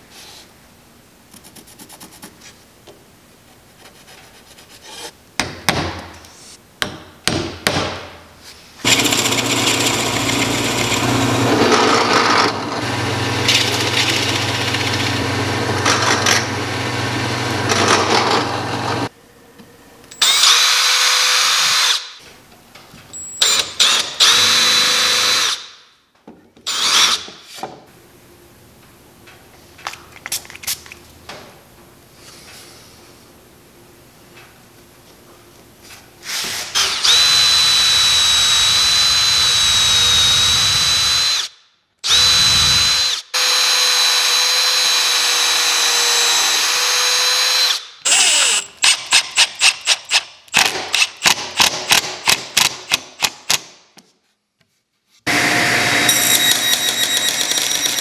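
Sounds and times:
drill press boring wood: 8.8s - 19.1s, 23.8s - 25.6s, 36.8s - 48.7s, 55.3s - 58.0s
whining power tool: 8.9s - 19.1s, 37.0s - 48.7s, 55.3s - 58.0s.

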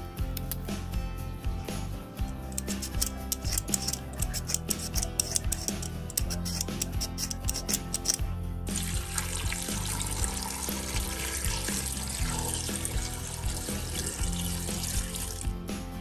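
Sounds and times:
background music: 0.0s - 16.0s
water pouring into a pot: 8.7s - 15.5s.

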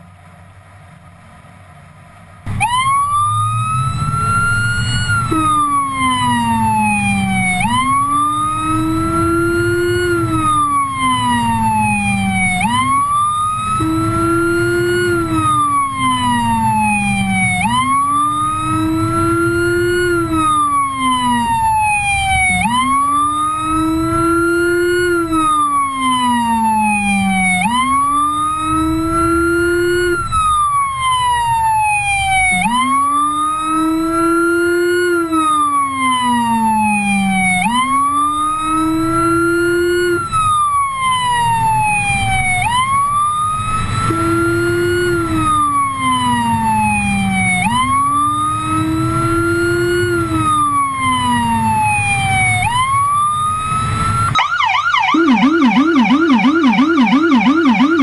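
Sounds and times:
road noise: 0.0s - 58.0s
deep low siren tone: 2.4s - 58.0s
police siren wailing and yelping: 2.5s - 58.0s.

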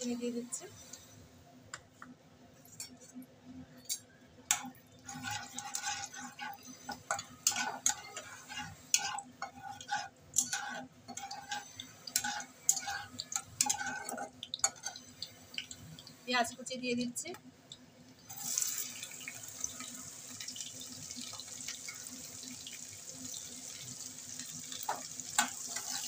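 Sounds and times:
spices frying in hot oil: 3.9s - 26.0s
spatula scraping a pan: 4.5s - 15.2s, 23.7s - 26.0s.

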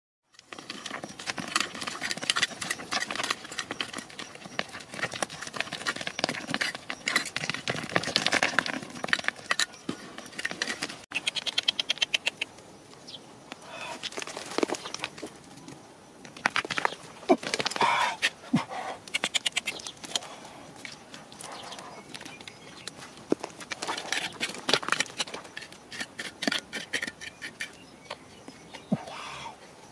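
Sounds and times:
digging in stony soil: 0.3s - 12.5s, 16.2s - 29.1s
quick run of clicks: 10.4s - 12.5s, 19.1s - 20.3s.

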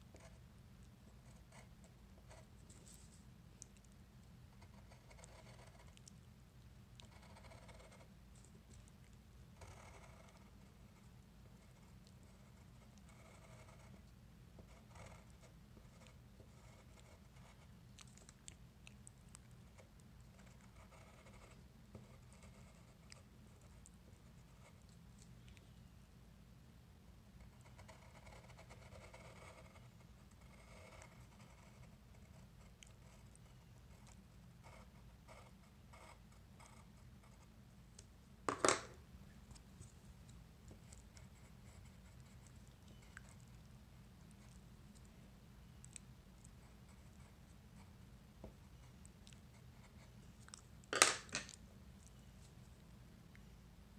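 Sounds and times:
low steady hum: 0.0s - 53.9s
pencil scratching on paper: 1.1s - 3.2s, 4.5s - 6.0s, 7.1s - 8.1s, 9.6s - 17.7s, 19.7s - 24.8s, 27.4s - 37.5s.

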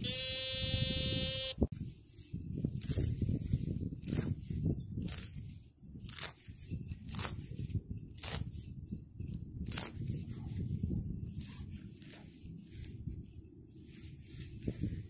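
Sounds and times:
shovel cutting through turf: 2.7s - 8.6s, 9.6s - 10.2s.

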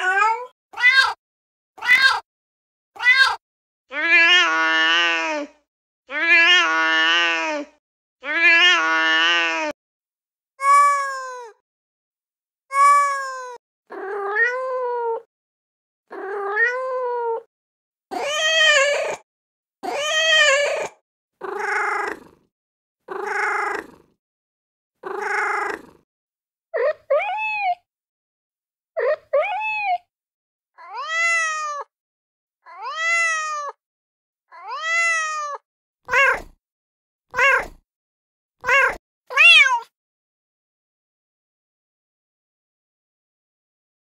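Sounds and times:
recorded cat meows: 0.0s - 1.2s, 1.8s - 2.3s, 3.0s - 5.5s, 6.1s - 9.8s, 10.6s - 11.6s, 12.7s - 15.3s, 16.1s - 17.5s, 18.1s - 19.2s, 19.8s - 22.4s, 23.1s - 24.0s, 25.0s - 26.0s, 26.8s - 27.9s, 29.0s - 30.1s, 30.8s - 31.9s, 32.6s - 33.8s, 34.5s - 36.6s, 37.3s - 37.8s, 38.6s - 40.0s.

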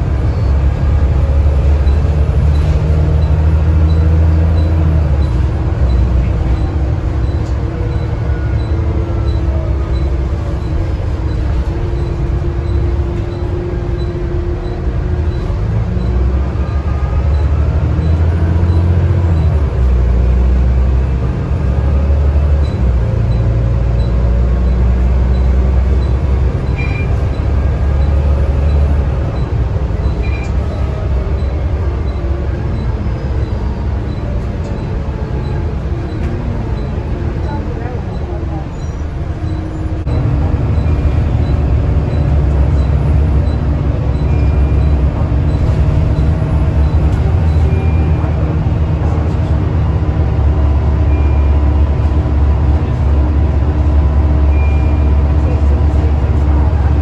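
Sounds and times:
bus diesel engine: 0.0s - 57.0s
road noise: 0.0s - 57.0s.

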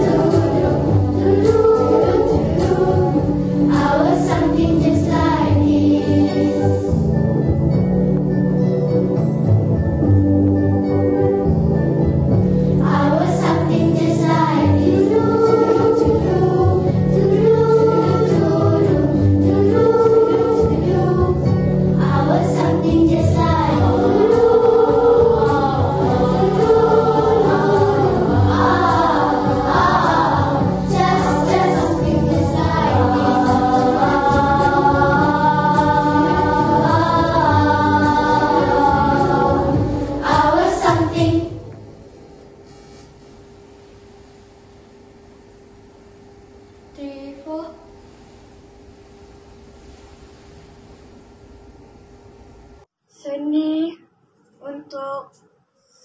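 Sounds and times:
girls choir singing: 0.0s - 7.1s, 12.8s - 41.8s.

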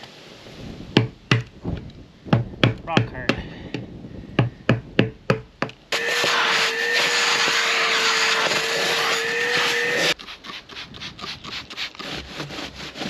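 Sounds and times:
wet dry vacuum whining: 5.9s - 10.2s
rag rubbing strokes: 5.9s - 13.0s.

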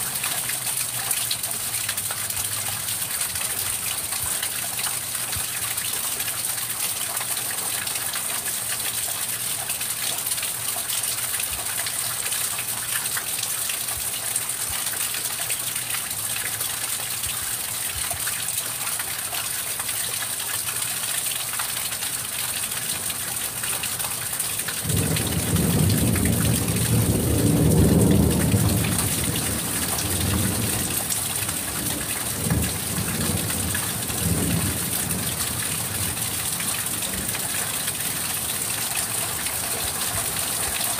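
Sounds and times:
steady rain falling: 0.0s - 40.9s
thunder rumbling: 24.8s - 37.4s.

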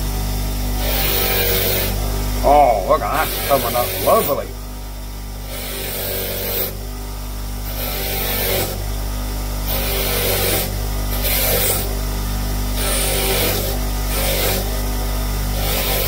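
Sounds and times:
grinder motor humming: 0.0s - 6.8s, 7.4s - 16.0s.

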